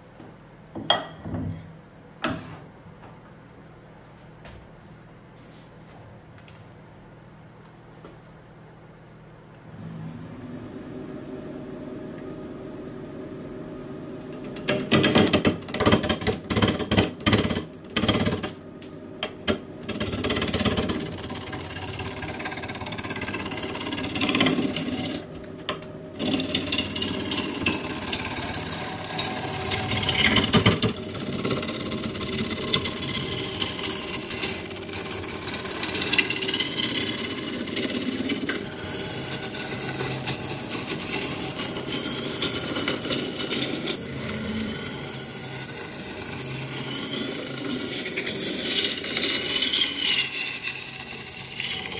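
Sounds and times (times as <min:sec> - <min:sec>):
gouge cutting wood on lathe: 0:19.8 - 0:25.2, 0:26.2 - 0:51.9.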